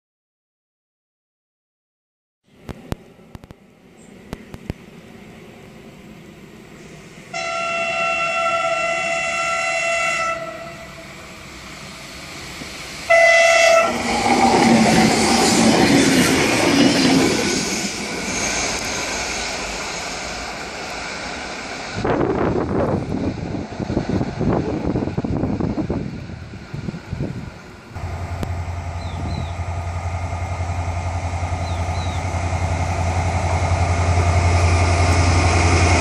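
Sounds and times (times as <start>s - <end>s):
train horn blasts: 7.3s - 11.2s, 13.1s - 14.1s
train wheels rushing over rails: 10.4s - 36.0s.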